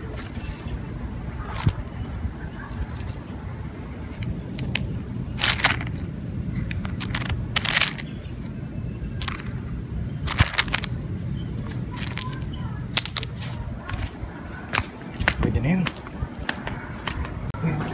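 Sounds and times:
low steady rumble: 0.0s - 17.9s
hand stirring gravel stones: 4.1s - 8.2s, 9.2s - 9.6s, 10.2s - 11.0s, 11.6s - 17.2s.

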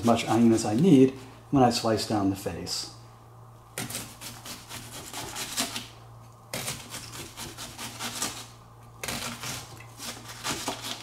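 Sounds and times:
knife chopping onion on board: 3.8s - 5.8s, 6.5s - 11.0s.

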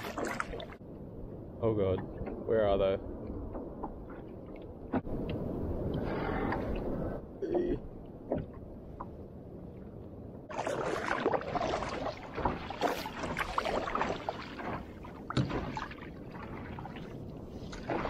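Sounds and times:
kayak paddling splashes: 0.0s - 0.8s, 10.5s - 18.0s
water lapping against hull: 0.0s - 0.8s, 10.5s - 18.0s
small knocks against boat: 15.3s - 15.8s.

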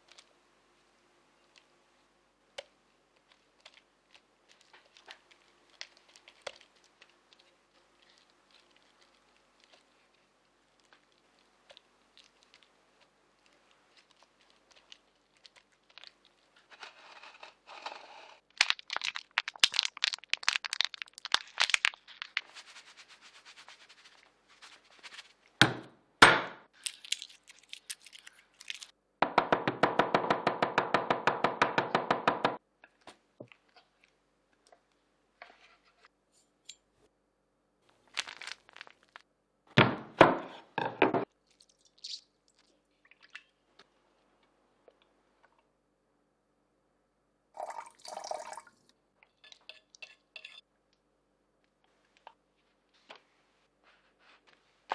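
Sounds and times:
garlic skin crackling and tearing: 18.5s - 22.4s, 26.8s - 28.9s.

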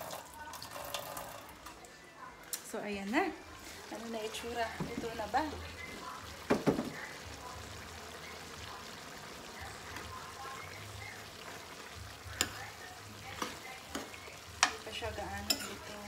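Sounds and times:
curry sizzling in a pan: 2.6s - 16.0s
metal spoon stirring: 13.3s - 16.0s
spoon clinking against pan: 13.4s - 14.8s, 15.4s - 16.0s.

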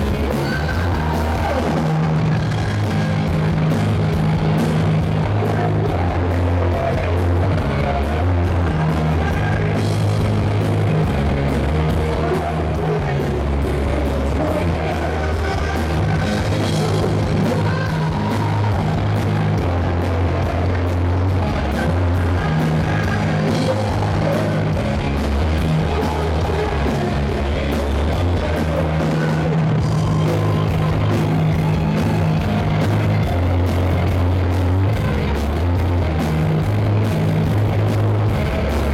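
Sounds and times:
person singing: 0.0s - 10.4s, 11.3s - 35.9s
bass guitar: 0.0s - 38.9s
drum kit: 0.0s - 38.9s
electric guitars: 0.0s - 38.9s.

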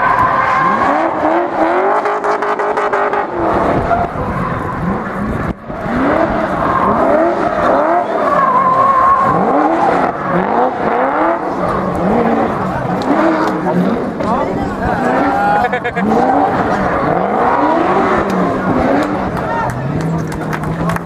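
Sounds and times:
car engine revving: 0.0s - 21.0s
tyres squealing: 5.9s - 18.5s.

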